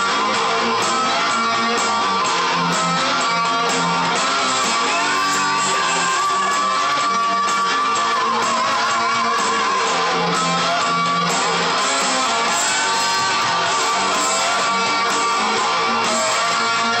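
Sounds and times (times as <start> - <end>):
electric guitar rock rhythm: 0.0 - 17.0.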